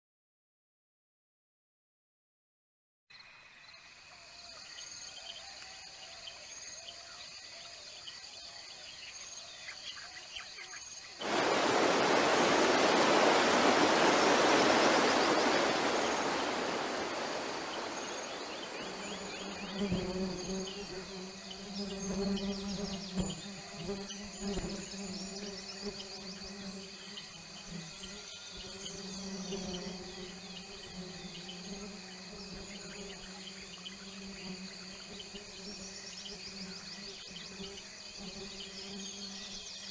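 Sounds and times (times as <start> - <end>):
insects chirping and buzzing: 3.1 - 39.9
river rushing over rapids: 11.2 - 19.5.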